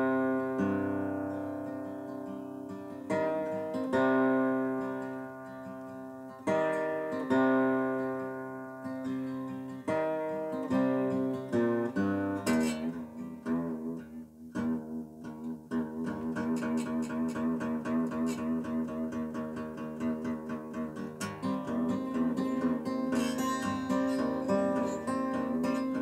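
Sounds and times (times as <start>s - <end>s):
acoustic guitar strumming: 0.0s - 26.0s.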